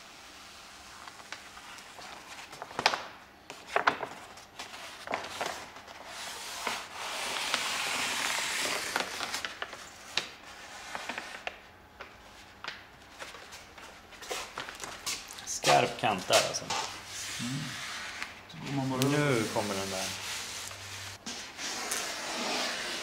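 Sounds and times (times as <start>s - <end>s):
backing paper crackling: 0.9s - 16.9s
squeegee rubbing along vinyl: 15.7s - 23.0s.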